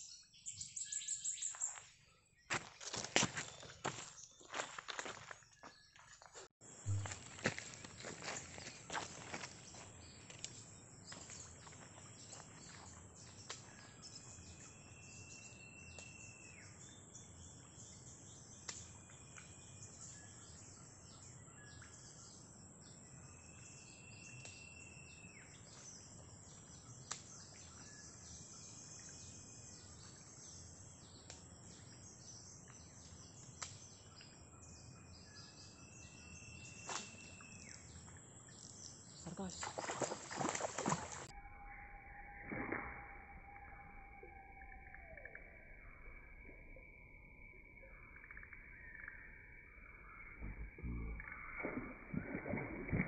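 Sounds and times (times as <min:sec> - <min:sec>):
insects chorus: 0:34.6 - 0:38.0, 0:38.6 - 0:52.6.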